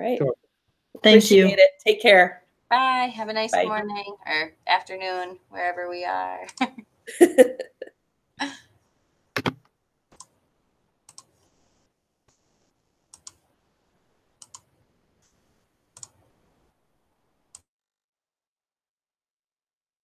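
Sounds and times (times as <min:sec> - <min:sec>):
computer mouse clicks: 0:09.4 - 0:09.6, 0:11.1 - 0:11.3, 0:13.1 - 0:13.4, 0:14.4 - 0:15.4, 0:16.0 - 0:16.2.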